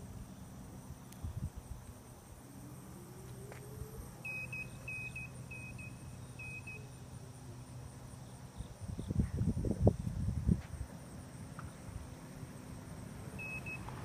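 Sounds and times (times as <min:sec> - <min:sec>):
steady hum: 0:00.0 - 0:14.0
short high beeps: 0:04.3 - 0:06.8, 0:13.4 - 0:13.9.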